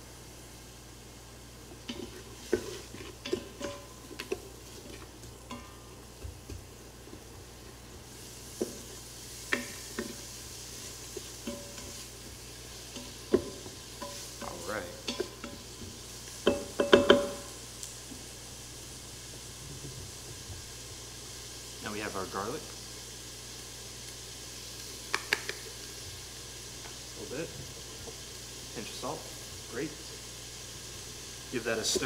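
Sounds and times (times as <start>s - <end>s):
onions sizzling in oil: 0.0s - 32.0s
wooden spoon knocking pot: 16.4s - 17.5s.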